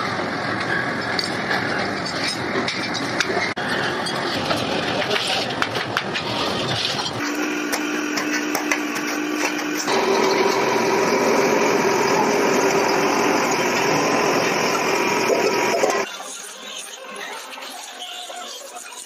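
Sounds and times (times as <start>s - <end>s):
constant machine whine: 0.0s - 16.0s
hydraulic press humming: 7.2s - 16.0s.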